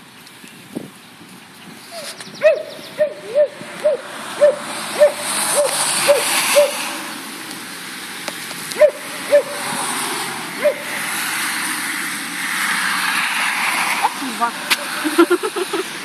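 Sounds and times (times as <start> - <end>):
tyres hissing on wet road: 0.0 - 16.0
dog barking: 8.8 - 9.6.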